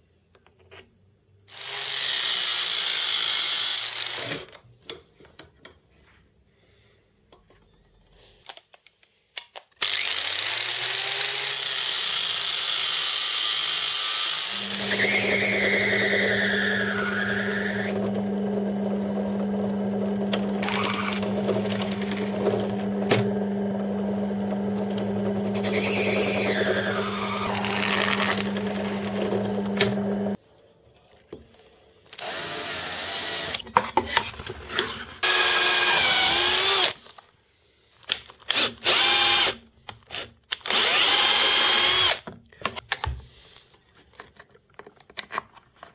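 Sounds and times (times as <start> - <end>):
drill press motor humming: 14.3 - 30.4, 35.2 - 36.9, 40.7 - 42.2
drill bit squealing in plastic: 14.5 - 17.9, 20.6 - 21.6, 25.5 - 29.1.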